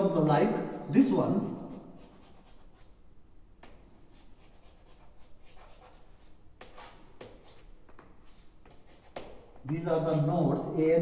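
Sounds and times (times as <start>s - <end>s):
chalk scratching on blackboard: 1.6s - 3.0s, 3.6s - 10.2s.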